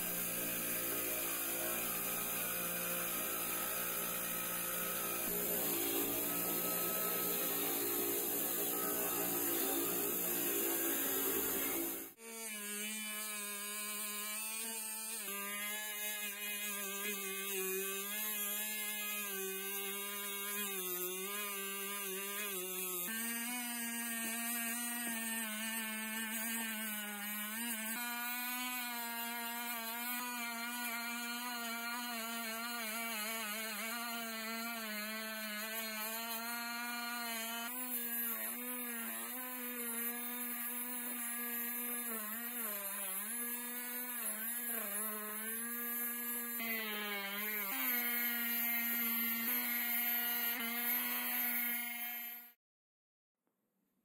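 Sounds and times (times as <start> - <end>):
rotary tool whining on metal: 0.0 - 52.6.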